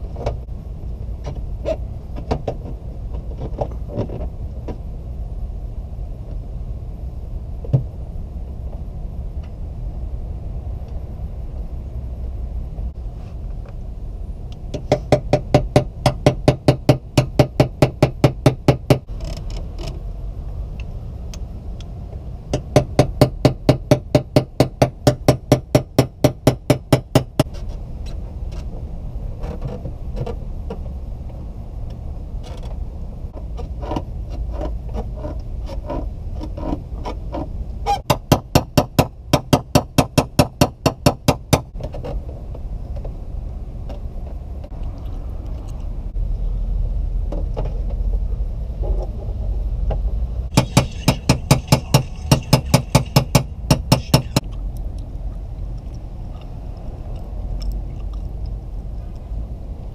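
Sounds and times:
low rumble: 42.1s - 59.9s
rapid hammer taps on metal: 50.6s - 54.5s.

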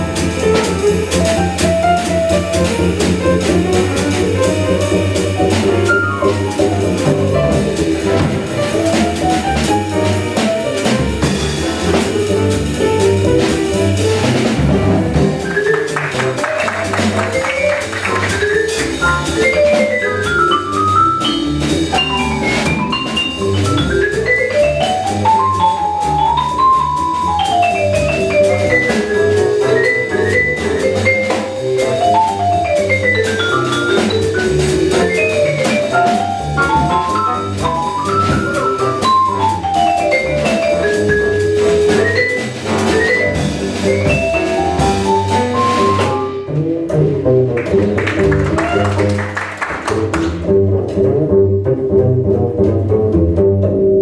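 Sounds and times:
drum kit with cymbals: 0.0s - 47.4s
upright bass: 0.0s - 54.0s
vibraphone solo: 17.3s - 46.0s.

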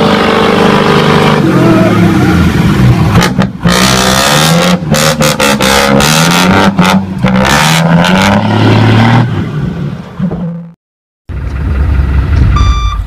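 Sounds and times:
loud engine revving: 0.0s - 9.8s.

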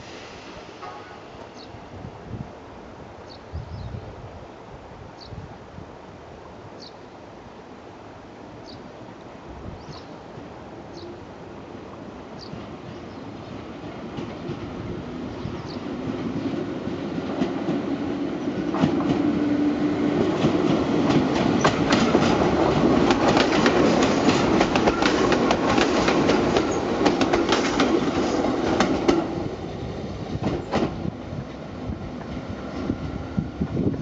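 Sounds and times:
electric train passing: 0.0s - 3.2s, 10.3s - 34.0s
wheels clicking over rail joints: 20.4s - 29.3s.

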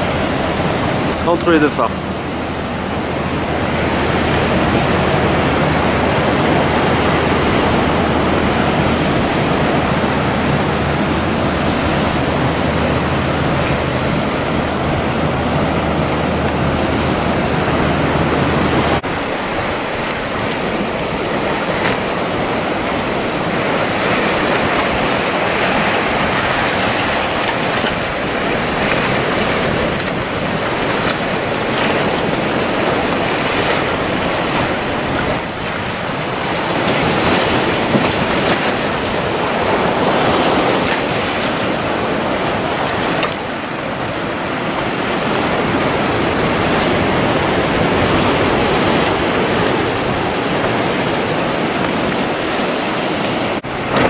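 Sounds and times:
rough sea water breaking: 0.0s - 54.0s
wind on microphone: 0.0s - 54.0s.

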